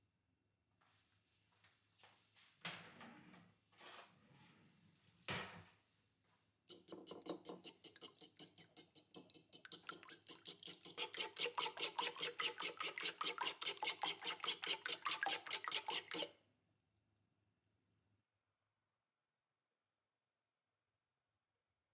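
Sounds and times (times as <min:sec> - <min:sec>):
fork beating eggs in bowl: 0:06.7 - 0:16.3.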